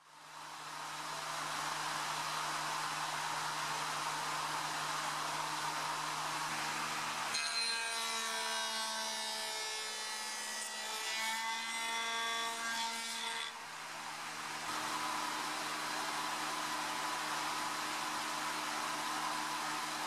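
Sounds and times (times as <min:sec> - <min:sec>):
cutter whining through wood: 0:14.3 - 0:20.0.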